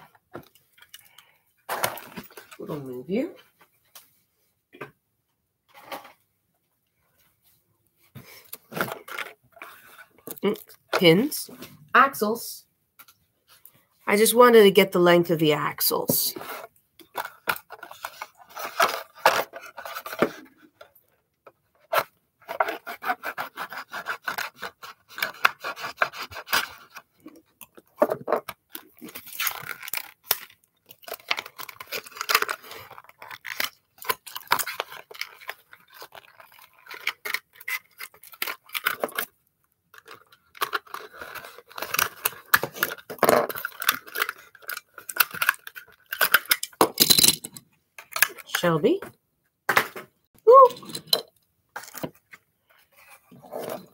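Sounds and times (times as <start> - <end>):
plastic packaging crackling: 28.7 - 39.3
cardboard tearing: 28.9 - 39.3.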